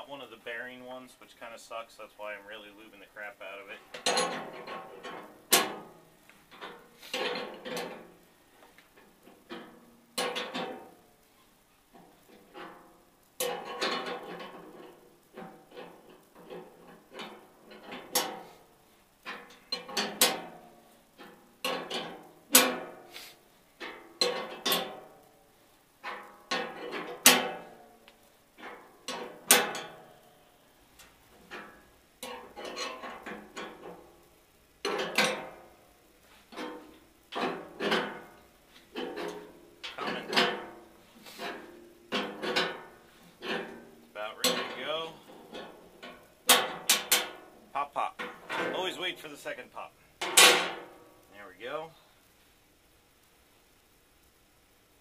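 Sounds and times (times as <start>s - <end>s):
metallic clanks and creaks: 3.5s - 11.1s, 11.9s - 23.1s, 23.8s - 25.4s, 26.0s - 30.4s, 31.0s - 34.2s, 34.8s - 49.3s.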